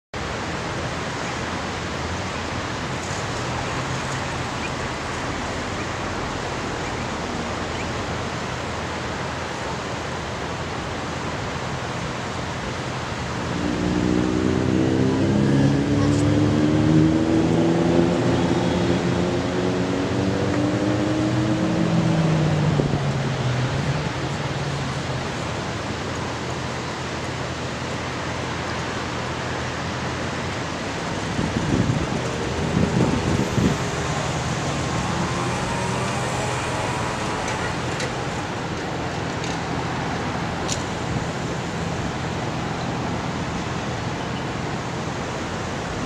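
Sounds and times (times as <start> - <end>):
road traffic hiss: 0.2 - 46.0
nearby vehicle engine: 31.1 - 39.5.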